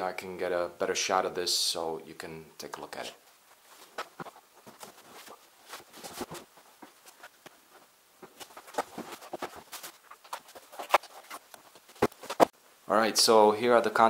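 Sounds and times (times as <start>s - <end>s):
cardboard and plastic packaging rustling: 3.5s - 12.5s
clicks and thumps: 3.8s - 12.5s.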